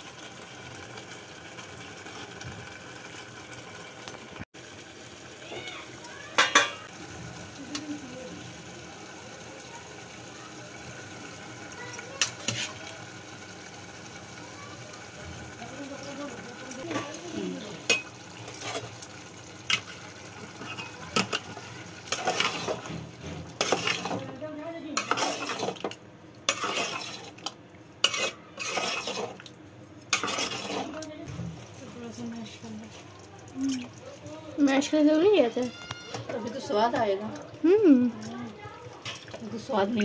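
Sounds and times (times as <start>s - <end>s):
metal spoon scraping a pot: 12.2s - 12.8s, 17.8s - 19.0s, 20.6s - 24.3s, 25.0s - 29.5s, 30.1s - 31.1s.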